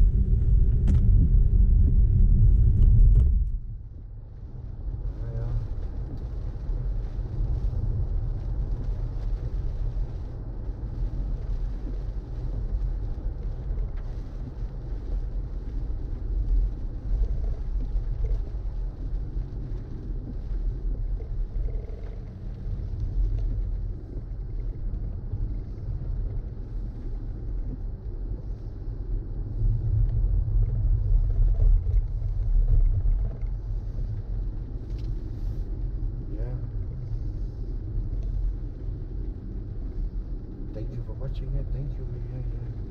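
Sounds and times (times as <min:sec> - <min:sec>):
car road and tyre rumble: 0:00.0 - 0:42.9.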